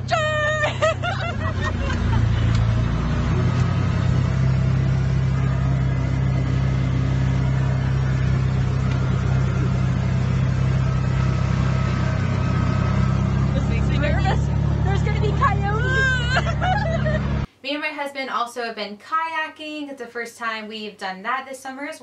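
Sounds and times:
vehicle engine running: 0.0s - 17.5s.

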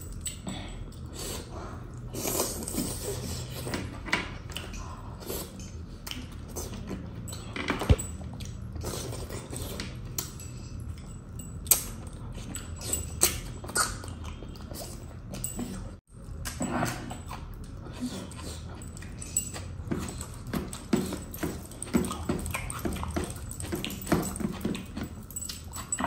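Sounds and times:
person chewing meat: 7.9s - 26.0s.

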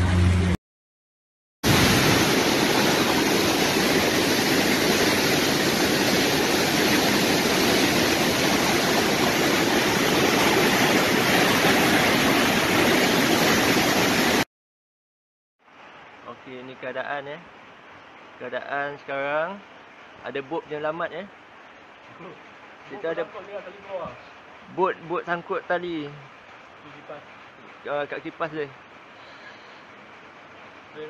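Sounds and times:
floodwater rushing: 1.6s - 14.4s.

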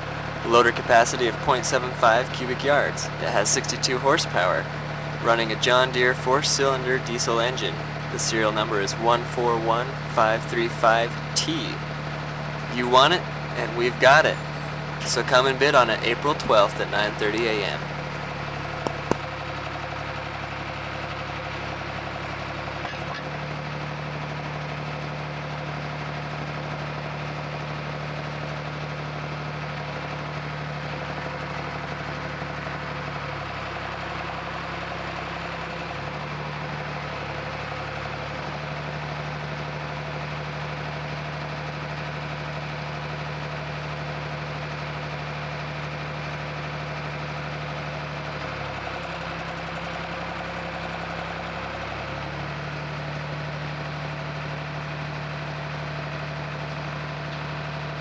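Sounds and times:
diesel engine running: 0.0s - 58.0s.

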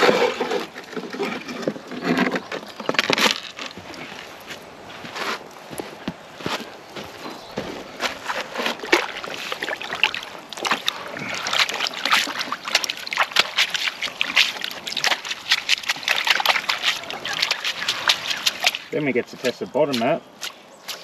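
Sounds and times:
water sloshing and splashing: 0.0s - 5.8s, 7.0s - 21.0s
mat being scrubbed: 10.6s - 19.6s.

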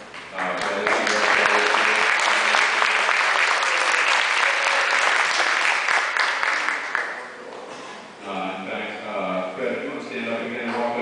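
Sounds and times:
audience applauding: 0.4s - 7.4s.

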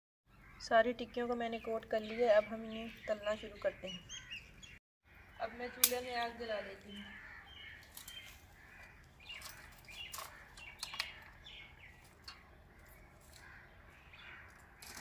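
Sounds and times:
dry twigs snapping: 7.8s - 13.6s.

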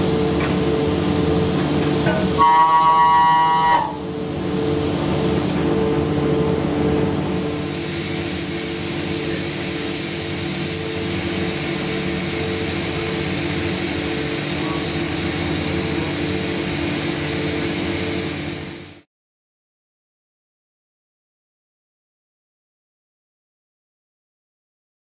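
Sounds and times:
coolant spray hissing: 7.3s - 19.0s.

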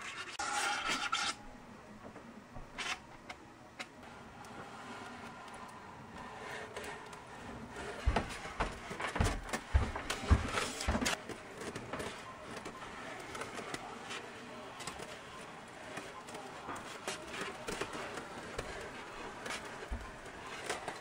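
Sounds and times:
knocks and crackly rubbing on styrofoam: 4.5s - 21.0s.

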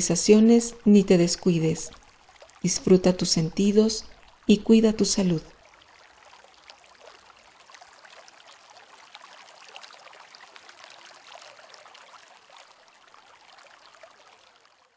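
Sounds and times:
water drops ticking: 0.0s - 5.6s
water trickling and splashing: 0.0s - 14.9s.

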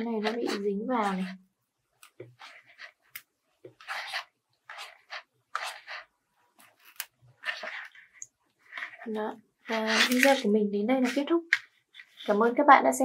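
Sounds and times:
paper and straws rustling: 2.1s - 12.4s.

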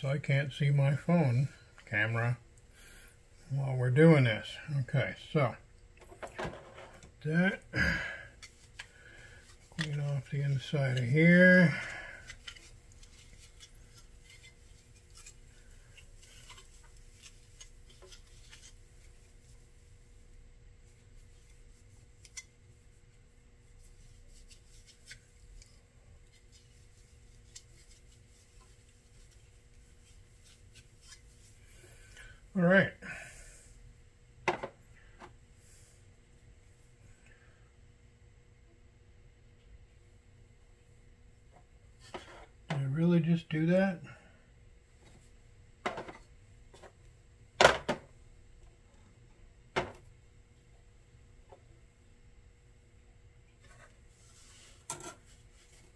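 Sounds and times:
faint steady hum: 0.0s - 55.9s
cloth rubbing on plastic: 26.3s - 32.0s.

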